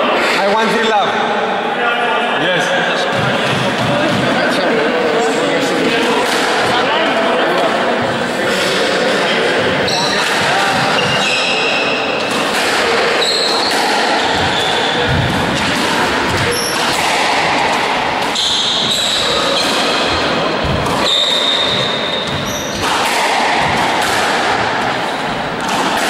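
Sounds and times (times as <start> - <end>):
sneakers squeaking on wooden floor: 9.6 - 23.9
squash ball struck by rackets: 10.1 - 11.2, 12.3 - 26.0.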